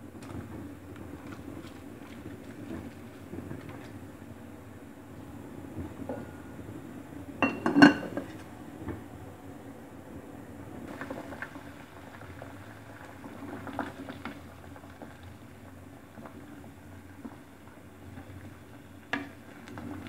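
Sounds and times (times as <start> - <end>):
low steady background noise: 0.0 - 20.0
pot lid clanking: 7.4 - 8.2
utensil clinking against pot: 7.4 - 8.2.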